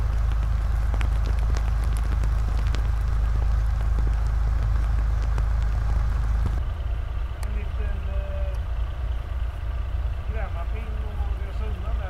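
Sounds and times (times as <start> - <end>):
sharp ticks and crackles: 0.0 - 6.6
diesel engine idling: 0.0 - 12.0.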